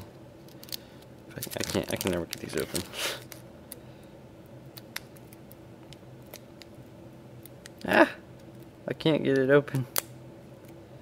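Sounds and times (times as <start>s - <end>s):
foil wrapper crackling: 0.7s - 3.4s.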